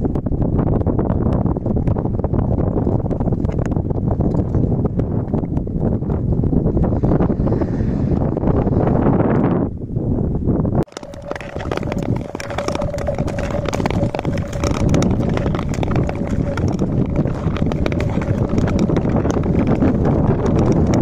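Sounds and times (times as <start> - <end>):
wind buffeting microphone: 0.0 - 21.0
ice skates scraping on ice: 7.2 - 8.8, 10.9 - 21.0.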